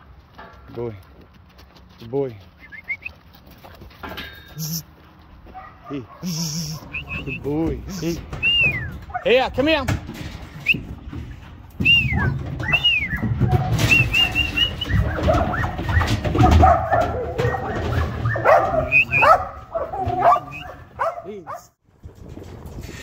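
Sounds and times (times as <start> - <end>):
sharp whistle notes: 2.6 - 3.1, 6.9 - 7.5, 8.4 - 8.9, 13.8 - 15.0, 18.9 - 19.3
dog barking: 5.5 - 6.9, 16.3 - 21.8.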